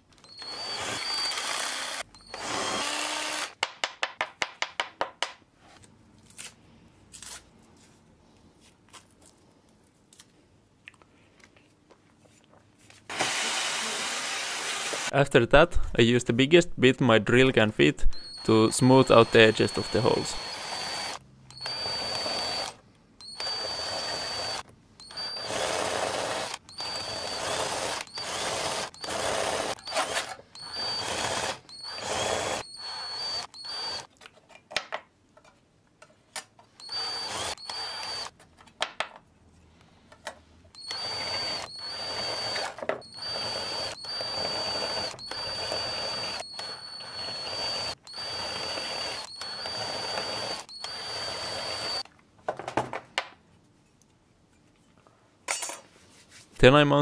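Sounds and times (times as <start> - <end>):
power drill deburring metal: 0.3 - 3.6, 13.1 - 15.1, 18.1 - 34.1, 36.8 - 38.3, 40.8 - 52.0.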